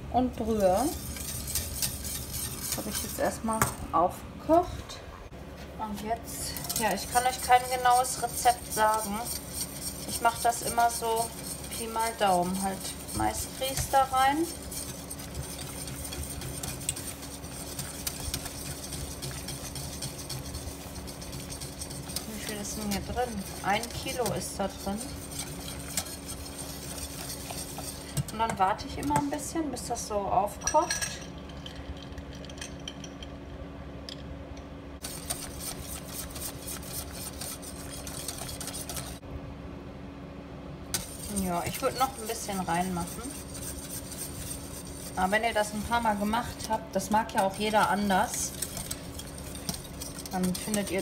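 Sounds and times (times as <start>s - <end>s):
steady low hum: 0.0s - 51.0s
whisk ticking against a pot: 0.6s - 3.4s, 6.5s - 29.4s, 35.0s - 39.2s, 40.9s - 51.0s.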